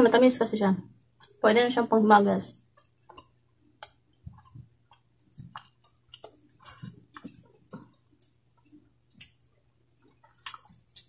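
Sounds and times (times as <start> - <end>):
person chewing food: 2.6 - 11.0.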